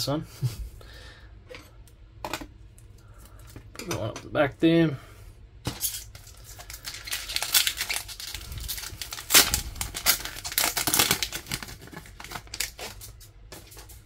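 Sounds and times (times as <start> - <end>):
foil wrapper crinkling and tearing: 5.7 - 14.0.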